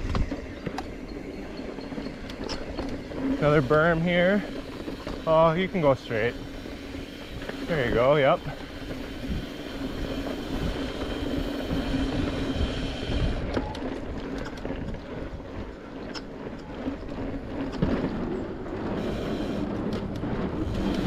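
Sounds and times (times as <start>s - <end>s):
bike clicks and rattles: 0.0s - 21.0s
bike tyre rumble on dirt: 0.0s - 21.0s
wind on microphone: 5.8s - 15.8s, 16.7s - 21.0s.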